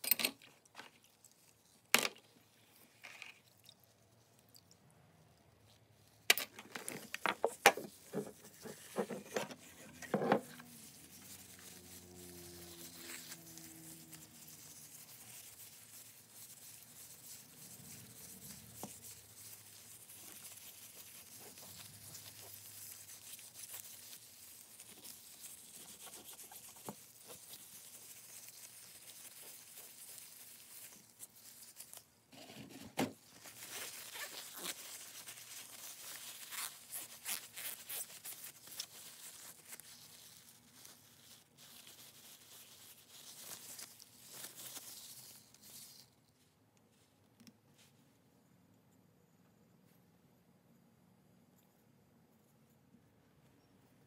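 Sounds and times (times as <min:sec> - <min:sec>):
paper towel rustling: 0:06.9 - 0:47.1
faint rubbing: 0:06.9 - 0:48.1.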